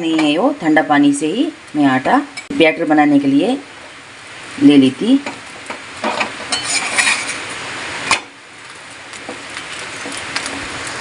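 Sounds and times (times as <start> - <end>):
low sizzle: 0.0 - 11.0
spatula scraping hot griddle: 5.3 - 11.0.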